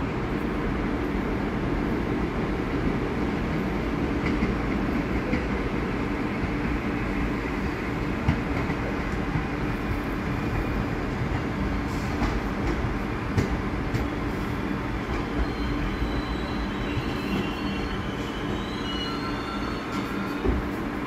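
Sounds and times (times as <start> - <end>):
train wheels rumbling on rail: 0.0 - 21.0
high wheel squeal: 14.6 - 20.7.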